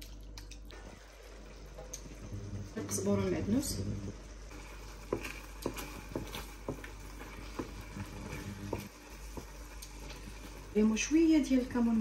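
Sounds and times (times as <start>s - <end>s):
wooden spoon tapping a pan: 5.0s - 10.0s.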